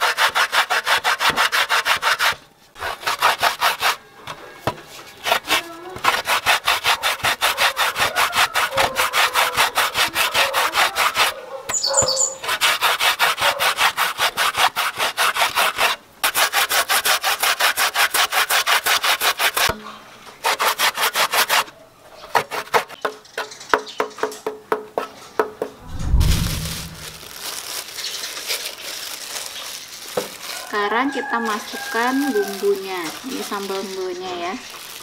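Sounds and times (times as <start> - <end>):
coconut rasped on metal grater: 0.0 - 4.0, 5.1 - 11.3, 12.3 - 19.7.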